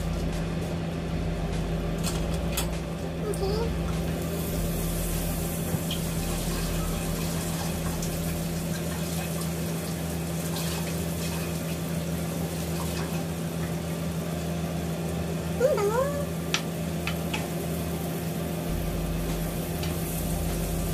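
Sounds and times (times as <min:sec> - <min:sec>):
constant low hum: 0:00.0 - 0:20.9
butter sizzling in a frying pan: 0:04.2 - 0:15.5, 0:16.4 - 0:20.9.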